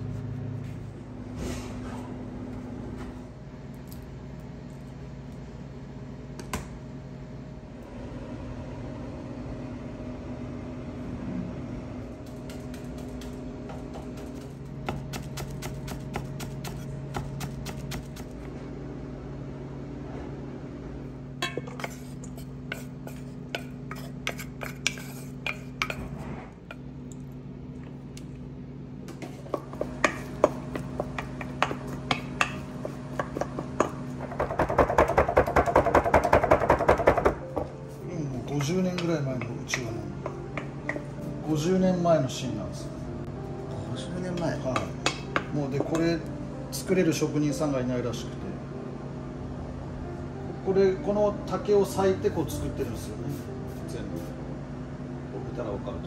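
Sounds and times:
steady hum: 0:00.0 - 0:56.0
dishes and utensils clinking: 0:21.4 - 0:26.8.

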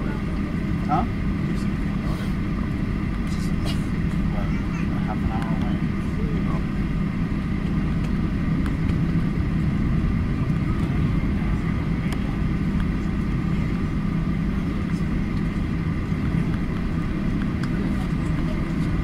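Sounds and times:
jet engine cabin rumble: 0:00.0 - 0:19.0.

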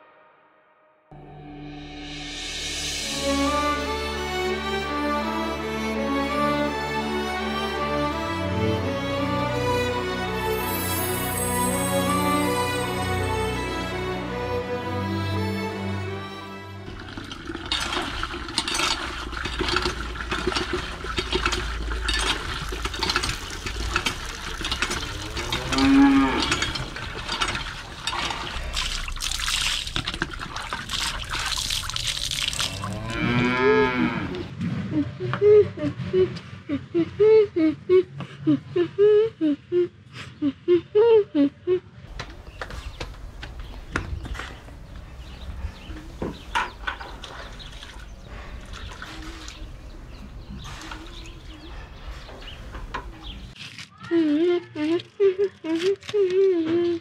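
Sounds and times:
water splashing and trickling: 0:16.8 - 0:34.2, 0:46.4 - 0:51.7
cattle mooing: 0:24.8 - 0:27.3, 0:32.6 - 0:34.5
water poured from mug: 0:26.7 - 0:33.1.

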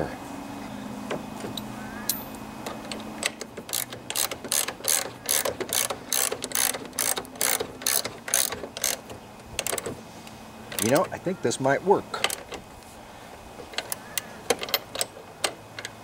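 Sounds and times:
socket ratchet clicking: 0:01.5 - 0:10.0, 0:10.7 - 0:11.1, 0:13.6 - 0:16.0.

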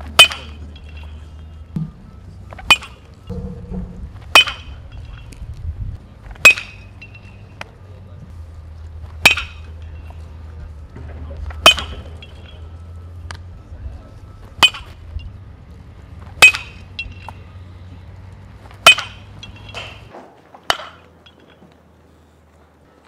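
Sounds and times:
metal bat pinging balls: 0:00.0 - 0:05.4, 0:06.3 - 0:07.7, 0:09.0 - 0:10.3, 0:11.0 - 0:13.5, 0:14.5 - 0:15.4, 0:16.3 - 0:17.5, 0:18.8 - 0:21.6
low steady hum: 0:00.0 - 0:20.1.

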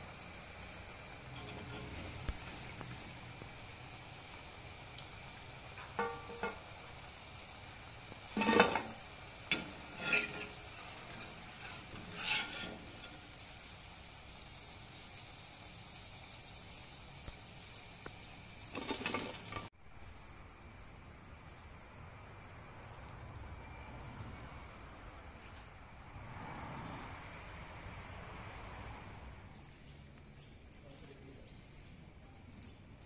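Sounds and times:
hot oil sizzling: 0:00.0 - 0:20.0
metal ladle clinking and scraping: 0:01.3 - 0:02.2, 0:08.3 - 0:13.2, 0:18.8 - 0:19.7.

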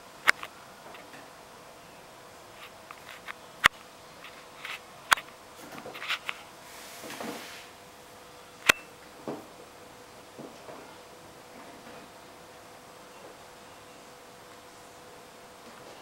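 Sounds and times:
soft scratching and rustling: 0:04.1 - 0:04.9.

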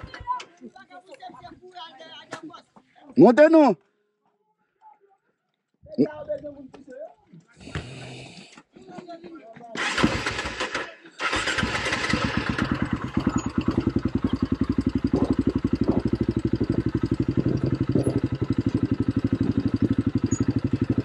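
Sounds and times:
quad bike engine idling: 0:09.8 - 0:21.0.

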